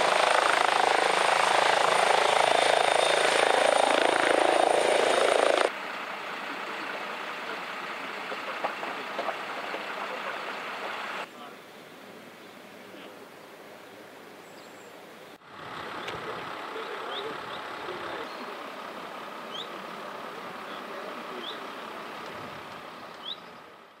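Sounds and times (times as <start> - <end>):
hum of vehicles: 5.7 - 11.3, 15.4 - 24.0.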